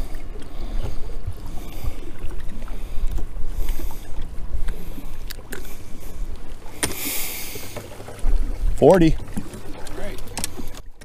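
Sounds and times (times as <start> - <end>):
small waves lapping on boat hull: 0.0 - 11.0
wind rumbling on microphone: 8.1 - 11.0.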